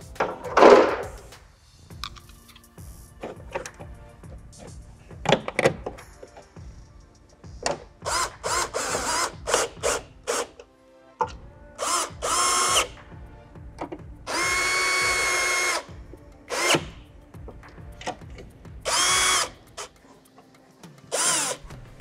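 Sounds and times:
cordless drill motor whine: 8.1 - 10.4, 11.8 - 12.9, 14.3 - 15.9, 18.9 - 19.6.

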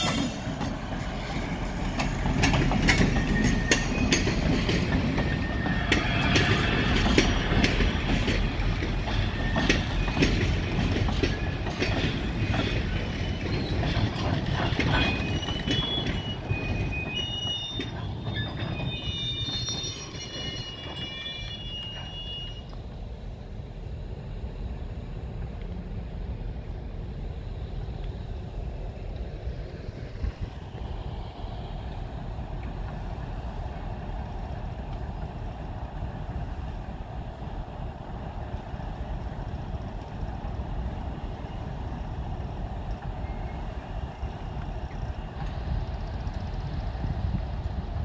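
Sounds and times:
freight wagons rumbling past: 0.0 - 23.0
diesel locomotive engine rumbling: 0.0 - 48.0
faint wheel squeal: 2.9 - 8.2, 11.3 - 23.0
wind buffeting microphone: 28.4 - 48.0.

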